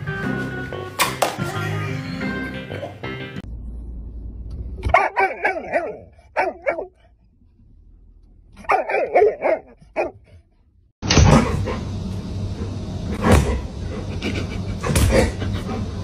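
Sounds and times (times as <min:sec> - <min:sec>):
large dog barking: 0:04.9 - 0:07.0, 0:08.6 - 0:10.3.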